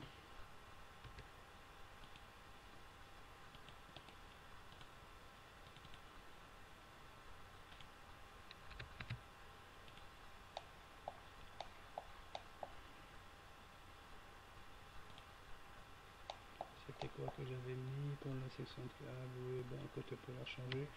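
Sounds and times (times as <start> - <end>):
low steady hum: 0.0 - 20.9
mouse and keyboard clicks: 8.5 - 9.2, 9.9 - 12.8, 16.3 - 17.2.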